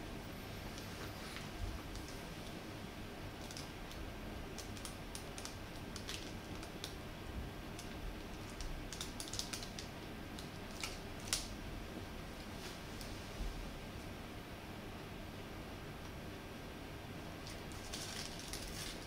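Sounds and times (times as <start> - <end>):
plastic wrapper crinkling: 3.4 - 4.0, 4.6 - 7.0, 7.8 - 11.5, 17.4 - 19.0.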